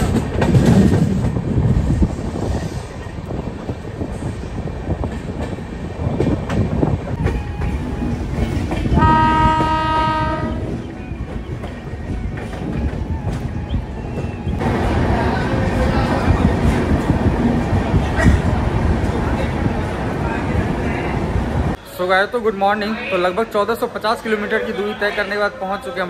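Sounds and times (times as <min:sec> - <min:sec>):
train wheels rumbling on tracks: 0:00.0 - 0:26.0
train horn: 0:09.0 - 0:10.8.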